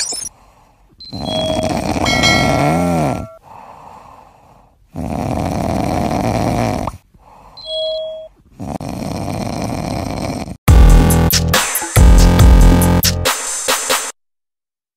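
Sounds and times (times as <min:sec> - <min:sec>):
cat snoring: 0:01.0 - 0:03.4, 0:04.9 - 0:07.0, 0:08.6 - 0:10.6
cat breathing: 0:03.4 - 0:04.8, 0:07.1 - 0:07.8.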